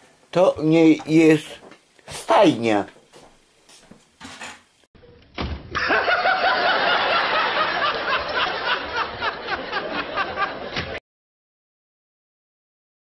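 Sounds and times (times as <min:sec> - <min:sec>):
man laughing loudly: 0:05.8 - 0:11.0.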